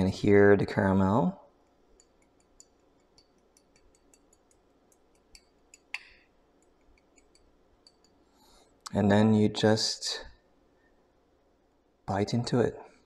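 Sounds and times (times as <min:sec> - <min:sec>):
spoon tapping caramel crust: 0:01.7 - 0:08.2.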